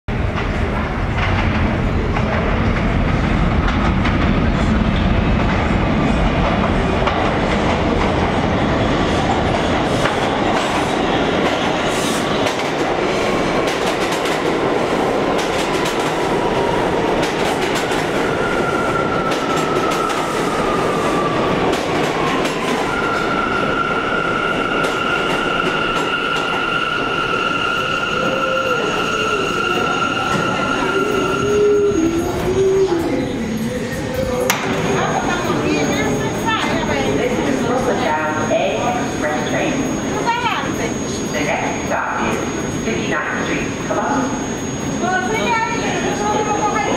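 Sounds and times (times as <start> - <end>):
train wheels rumbling and clacking: 0.1 - 33.2.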